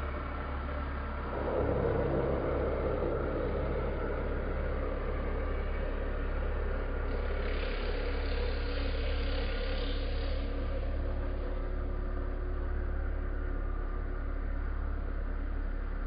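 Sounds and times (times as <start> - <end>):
hiss: 7.1 - 10.6.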